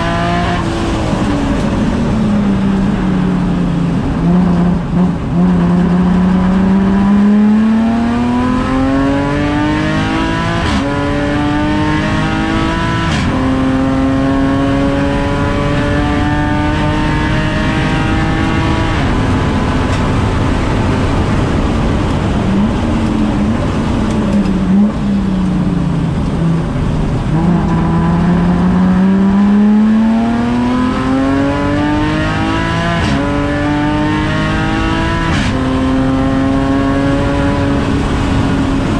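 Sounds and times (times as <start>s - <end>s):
race car engine revving: 0.0s - 38.9s.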